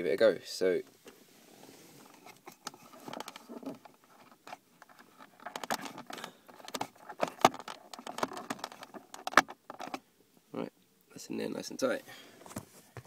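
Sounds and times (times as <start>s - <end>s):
jack plug scraping and clicking: 2.0s - 10.0s.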